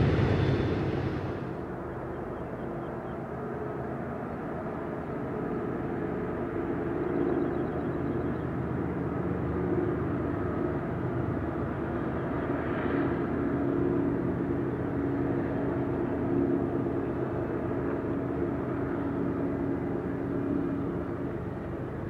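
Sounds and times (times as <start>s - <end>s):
diesel locomotives rumbling: 0.0s - 2.8s.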